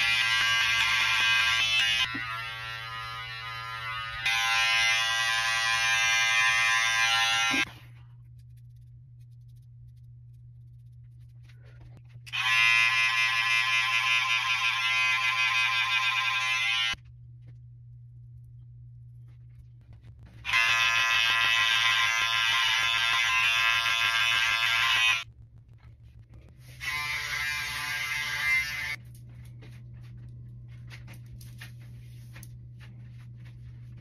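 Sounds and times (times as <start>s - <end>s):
electric hair trimmer buzzing: 0.0s - 7.7s, 12.3s - 17.0s, 20.4s - 25.2s, 26.8s - 29.0s
low steady hum: 7.6s - 12.3s, 17.0s - 20.5s, 25.2s - 26.8s, 29.0s - 34.0s.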